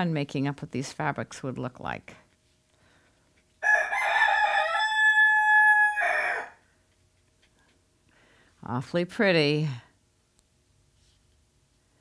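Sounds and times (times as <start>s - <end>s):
rooster crowing: 3.6s - 6.6s.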